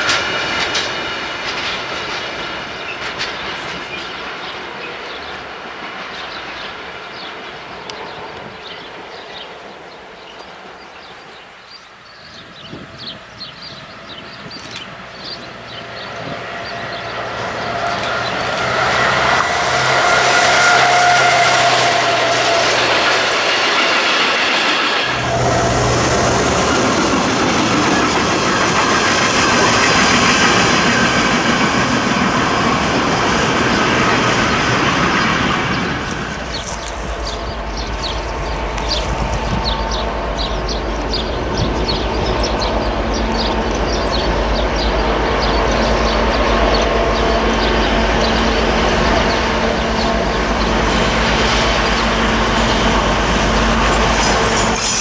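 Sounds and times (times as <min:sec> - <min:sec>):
train wheels clickety-clack: 0:00.0 - 0:11.4, 0:12.4 - 0:55.0
locomotive engine drone: 0:00.0 - 0:55.0
low rumble with rapid ticks: 0:36.0 - 0:54.8.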